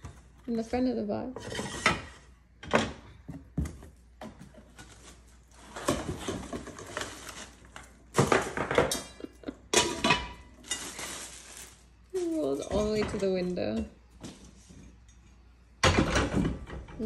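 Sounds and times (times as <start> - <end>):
cardboard and plastic rustling: 3.3 - 9.0, 10.4 - 14.8.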